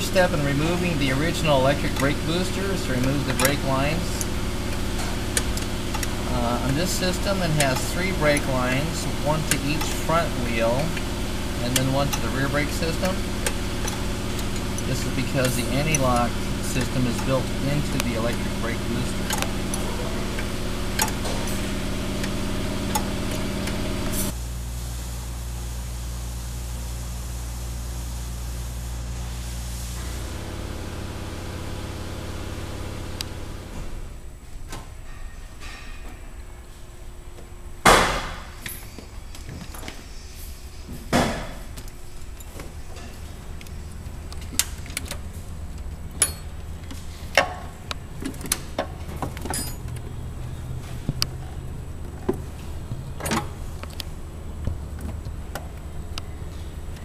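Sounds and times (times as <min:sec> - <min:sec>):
pulsing mechanical drone: 0:00.0 - 0:24.4
low steady hum: 0:00.0 - 0:31.5, 0:32.1 - 0:57.0
clicks and knocks of handling parts: 0:10.7 - 0:21.6, 0:41.2 - 0:57.0.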